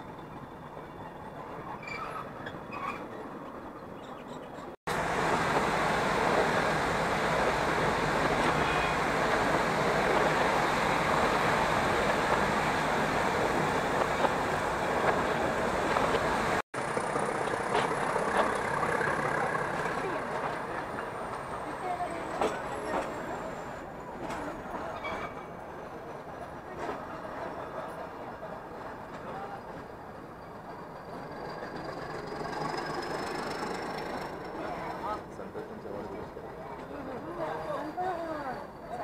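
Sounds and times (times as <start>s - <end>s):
wheels clicking on rails: 4.5s - 23.3s, 31.1s - 37.7s
train rushing running noise: 4.9s - 24.4s.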